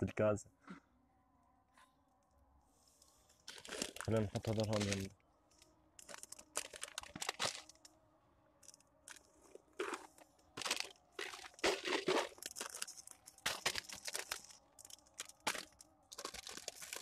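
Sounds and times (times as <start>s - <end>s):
plastic wrappers crinkling: 3.3s - 7.9s, 8.6s - 17.0s.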